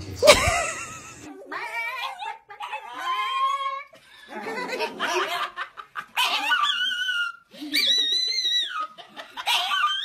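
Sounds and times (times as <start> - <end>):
person laughing: 0.2 - 1.2.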